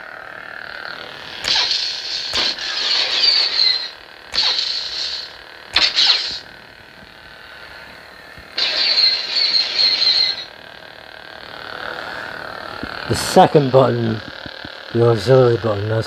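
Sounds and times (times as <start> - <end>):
lightsaber electric hum: 0.0 - 16.0
lightsaber effect sounds: 1.3 - 6.6, 8.6 - 10.7.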